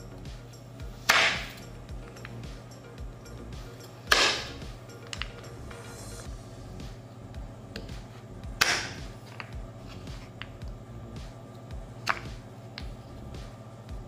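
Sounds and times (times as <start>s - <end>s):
knife chopping on wooden board: 1.0s - 1.6s, 8.6s - 10.3s.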